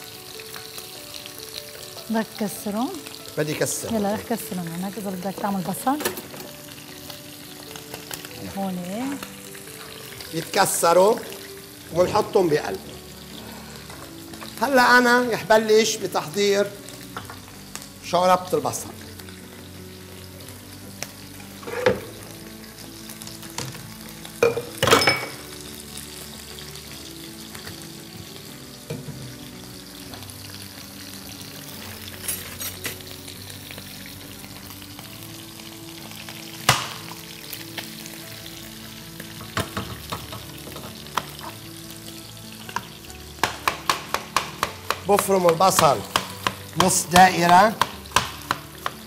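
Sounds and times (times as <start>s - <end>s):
meat sizzling in a pot: 0.0s - 49.0s
knife tapping on cutting board: 43.4s - 49.0s.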